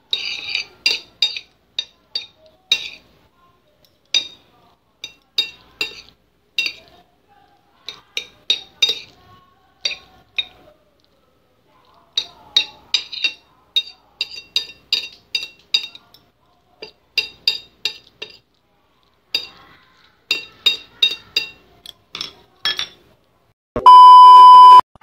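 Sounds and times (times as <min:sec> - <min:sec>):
cutlery clinking on ceramic plate: 0:00.1 - 0:03.1, 0:04.1 - 0:04.4, 0:05.0 - 0:06.9, 0:07.8 - 0:09.2, 0:09.8 - 0:10.6, 0:12.2 - 0:18.5, 0:19.3 - 0:19.6, 0:20.3 - 0:23.1.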